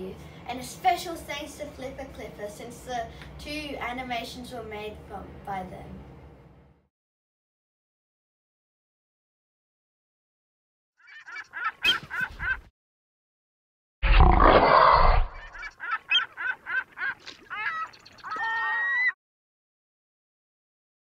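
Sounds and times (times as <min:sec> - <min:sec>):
squawking bird calls: 0:11.0 - 0:12.6, 0:15.3 - 0:19.2
loud rough monster noise: 0:14.0 - 0:15.4
sliding wavering calls: 0:15.3 - 0:19.2.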